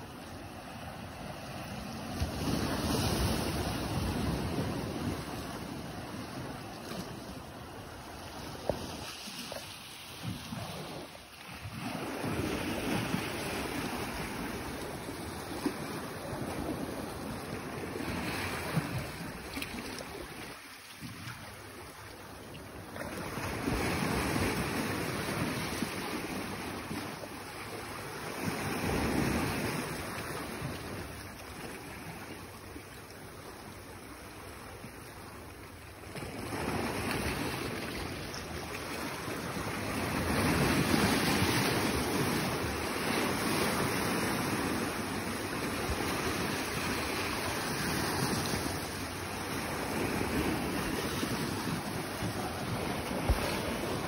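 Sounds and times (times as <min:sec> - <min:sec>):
sea surf washing on rocks: 0:00.0 - 0:20.7, 0:36.1 - 0:54.0.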